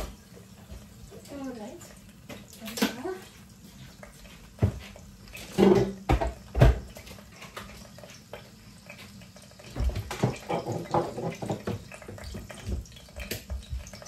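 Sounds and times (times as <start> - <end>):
cookware knocking and clattering: 5.5 - 6.9, 9.8 - 14.0.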